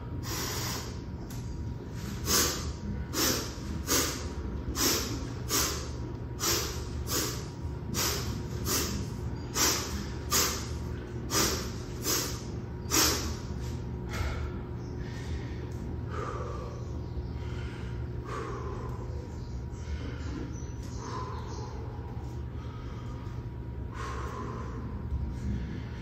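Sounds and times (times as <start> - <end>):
sharp sniff: 0.2 - 1.0, 2.0 - 10.7, 11.3 - 13.4.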